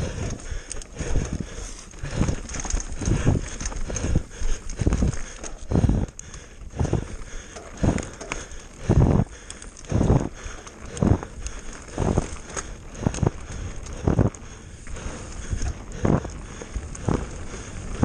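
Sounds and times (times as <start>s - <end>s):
bike thudding over bumps: 0.0s - 18.0s
bike tyre and trail noise: 0.0s - 18.0s.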